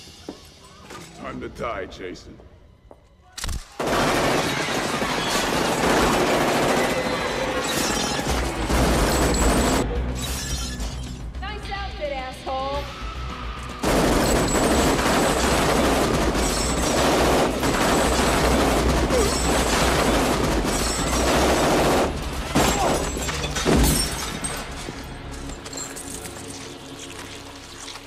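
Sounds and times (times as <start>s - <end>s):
automatic gunfire: 3.8s - 7.6s, 13.8s - 23.0s
glass shattering: 7.5s - 11.2s, 20.6s - 21.5s, 22.5s - 26.8s.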